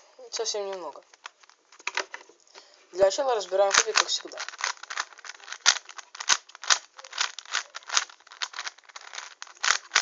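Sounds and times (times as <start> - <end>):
plastic puzzle cube clicking: 3.6 - 10.0.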